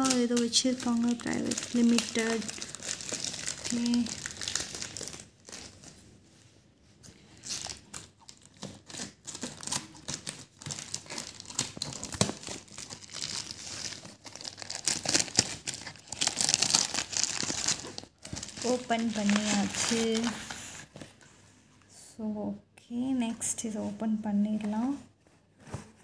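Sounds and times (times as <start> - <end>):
plastic wrapping crinkling: 0.0 - 6.0, 7.3 - 21.2
scissors cutting plastic: 7.5 - 18.0.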